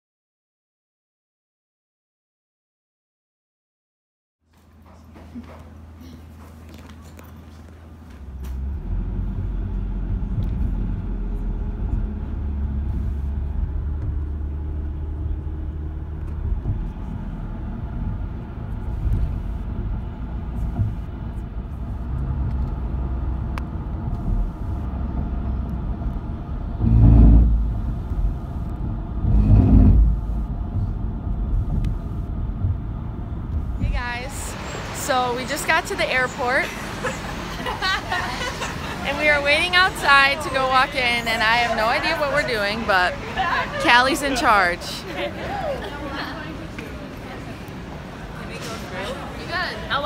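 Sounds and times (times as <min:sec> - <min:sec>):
van road rumble from inside: 0:05.0 - 0:50.0
louder rushes: 0:10.1 - 0:35.0.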